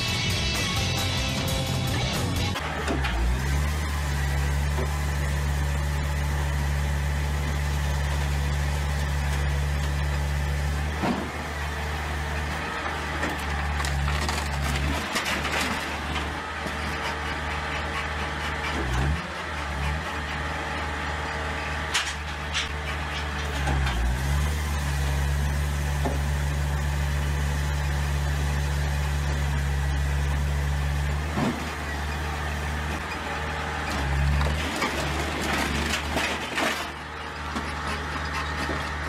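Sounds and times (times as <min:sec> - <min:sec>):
firewood processor drone: 0:00.0 - 0:39.0
wood cracking as it splits: 0:13.2 - 0:16.2.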